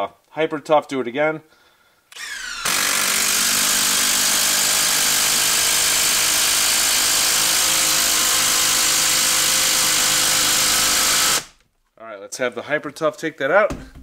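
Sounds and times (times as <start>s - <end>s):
screw driven into wood: 2.1s - 11.6s
impact driver hammering: 2.2s - 11.6s.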